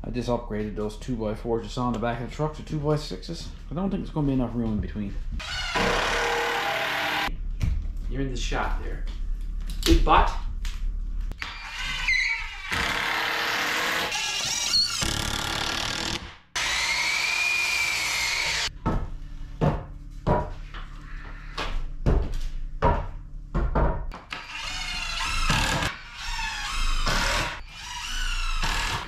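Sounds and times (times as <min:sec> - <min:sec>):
miter saw cutting board: 0:05.4 - 0:07.3
power tool running: 0:05.4 - 0:07.3, 0:12.6 - 0:18.7.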